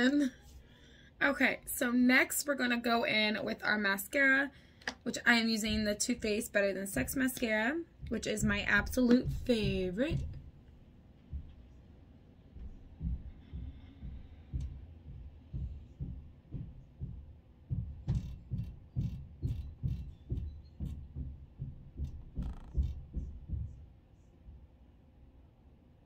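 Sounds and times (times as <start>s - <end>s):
dull low thuds: 5.6s - 6.4s, 7.0s - 24.0s.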